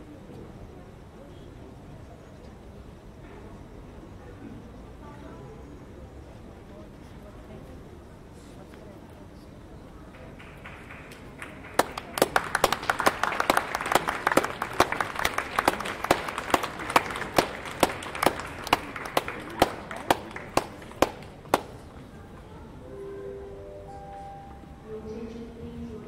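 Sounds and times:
crowd clapping: 0:10.1 - 0:21.9
sharp claps close by: 0:10.1 - 0:21.9.

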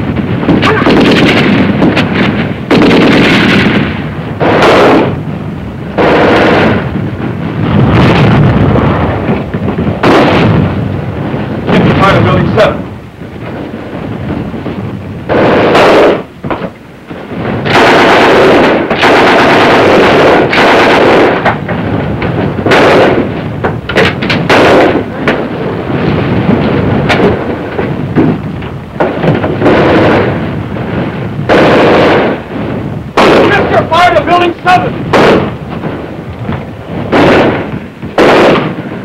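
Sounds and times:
automatic gunfire: 0:00.5 - 0:05.2, 0:06.0 - 0:06.9, 0:10.0 - 0:10.6, 0:15.3 - 0:16.7, 0:17.6 - 0:21.6, 0:22.6 - 0:23.3, 0:23.9 - 0:25.5, 0:31.5 - 0:32.5, 0:33.2 - 0:34.5, 0:35.1 - 0:35.6, 0:37.1 - 0:38.9.

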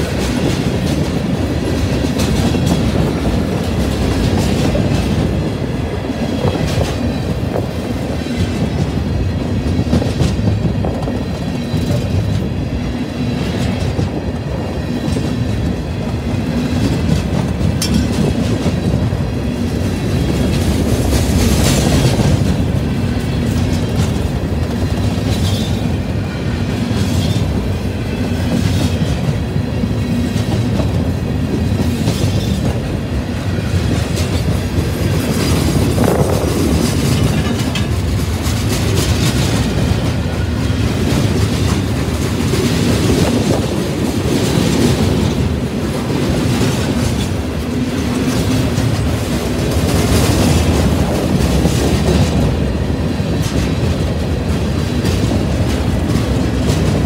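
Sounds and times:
freight train wheels rumbling: 0:00.0 - 0:57.0
train wheel knocks: 0:16.4 - 0:25.9.

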